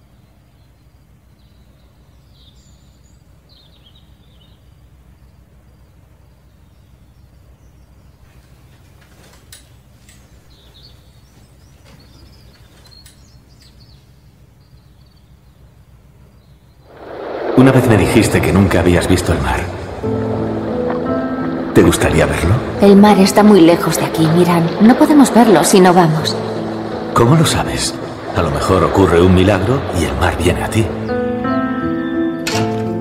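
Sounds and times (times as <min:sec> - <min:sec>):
faint bird chirps: 0:00.0 - 0:17.0.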